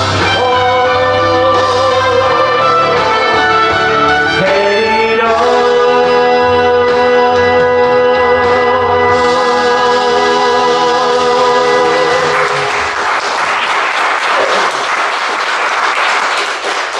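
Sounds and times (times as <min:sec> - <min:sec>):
audience applause: 0:12.0 - 0:16.9.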